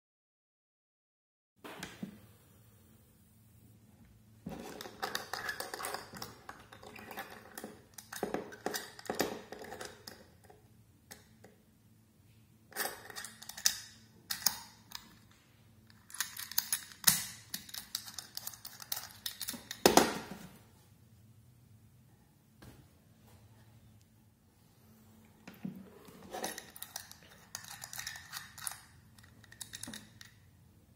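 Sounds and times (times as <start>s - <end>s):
padlock dial clicking and rattling: 12.8s - 15.2s, 15.9s - 19.8s, 26.4s - 30.4s.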